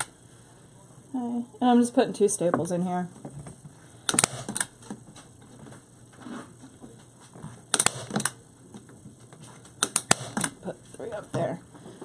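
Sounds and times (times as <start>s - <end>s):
handling noise: 2.5s - 12.0s
staple gun snapping: 4.1s - 4.7s, 7.7s - 8.4s, 9.8s - 10.6s.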